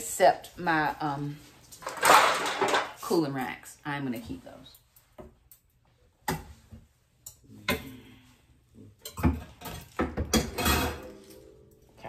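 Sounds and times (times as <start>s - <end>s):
kitchenware knocking and clicking: 1.8s - 2.9s, 9.0s - 11.4s.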